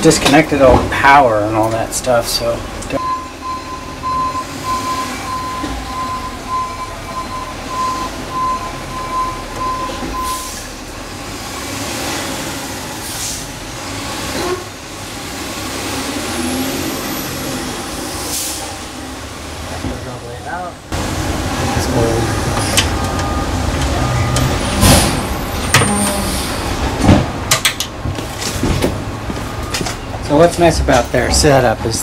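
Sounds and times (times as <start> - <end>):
vehicle noise: 0.0 - 32.0
high beeps: 3.0 - 10.6.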